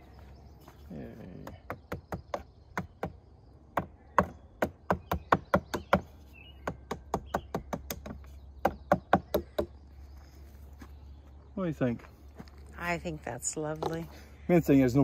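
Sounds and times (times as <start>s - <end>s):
hatchet knocking wooden wedges: 1.4s - 9.8s.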